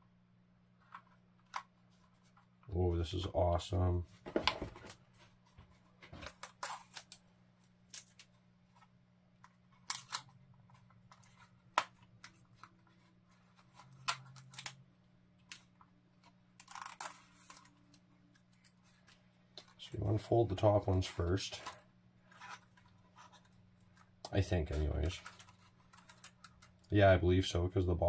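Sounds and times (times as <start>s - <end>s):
plastic clicks and rustles: 21.0s - 26.9s.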